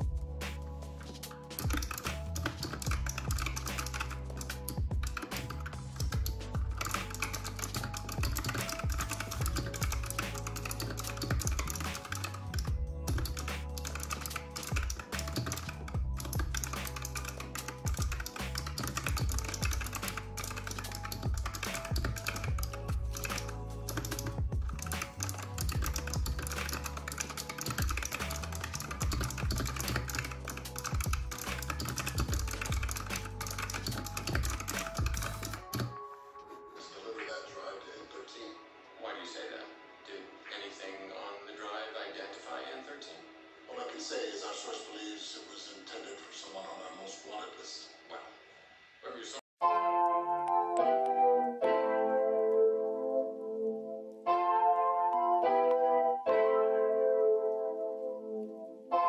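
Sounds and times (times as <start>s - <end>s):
background music: 0.0s - 59.0s
fast typing on keyboard: 1.5s - 35.9s.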